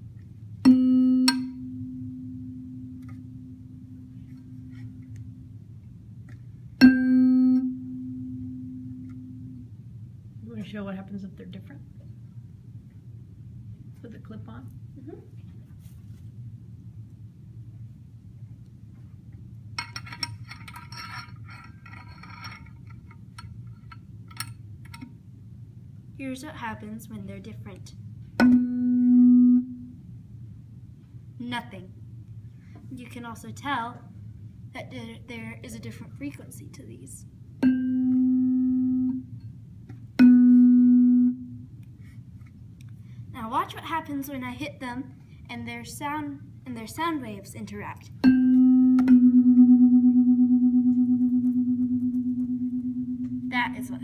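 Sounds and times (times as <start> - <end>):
mallet striking tuning fork: 0.6 - 5.5, 6.8 - 9.7, 28.4 - 30.0, 37.6 - 39.5, 40.2 - 41.7, 48.2 - 53.9
tuning fork ringing tone: 0.6 - 5.6, 6.8 - 9.7, 28.4 - 30.0, 37.6 - 39.5, 40.2 - 41.7, 48.2 - 53.9
metal clip clinking and scraping: 19.8 - 24.5.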